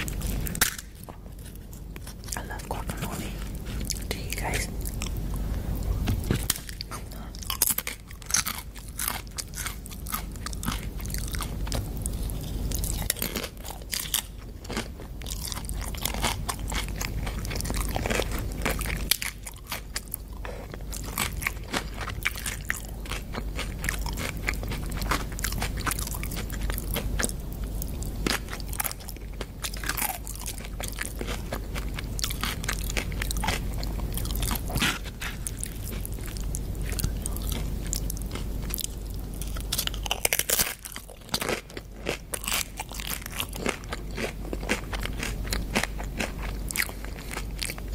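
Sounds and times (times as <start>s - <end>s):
chewing crunchy food: 0.0s - 47.9s.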